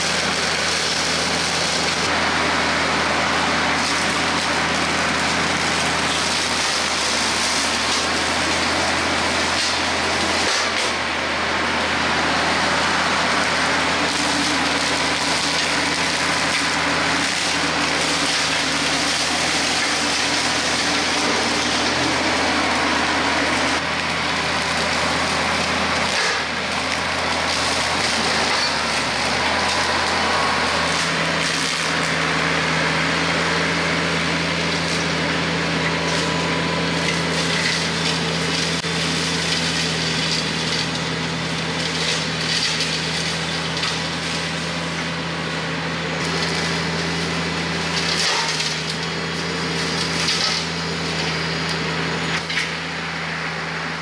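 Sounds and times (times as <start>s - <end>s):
rotary cutter cutting brush: 0.0s - 44.9s
tractor diesel engine running: 0.0s - 54.0s.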